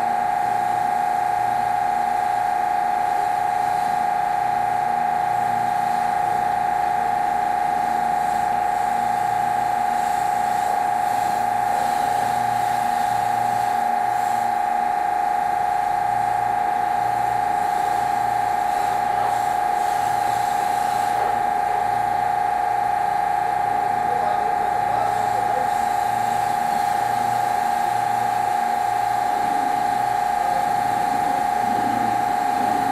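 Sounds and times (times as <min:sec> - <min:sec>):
pressure washer high-pitched whine: 0:00.0 - 0:32.9
low hum cutting in and out: 0:15.9 - 0:32.9.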